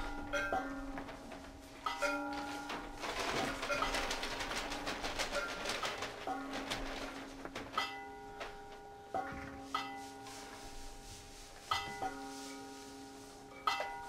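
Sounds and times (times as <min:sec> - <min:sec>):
bell-like metal percussion: 0:07.8 - 0:14.0.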